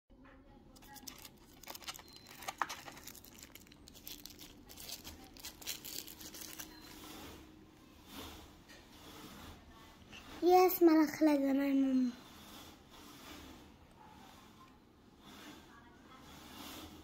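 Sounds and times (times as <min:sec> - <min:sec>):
wrapping crinkling and tearing: 0:00.8 - 0:07.4.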